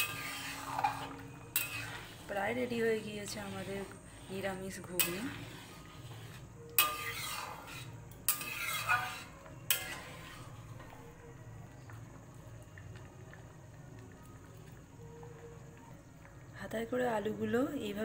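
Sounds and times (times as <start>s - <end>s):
ladle scraping metal pot: 0.0s - 11.0s.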